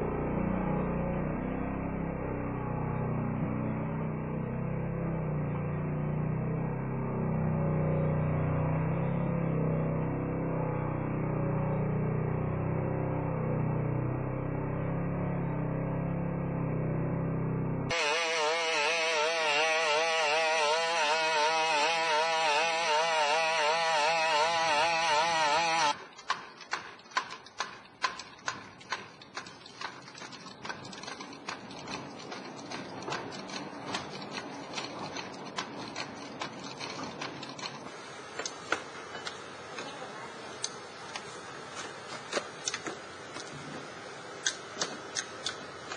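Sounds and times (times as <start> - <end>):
robot engine and pump buzzing: 17.9 - 26.0
robot feet clicking on concrete: 25.9 - 37.8.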